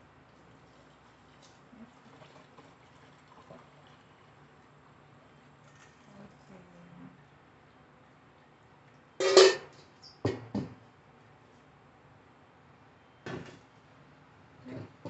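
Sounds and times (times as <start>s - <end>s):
metal bowls clanking together: 9.2s - 9.7s.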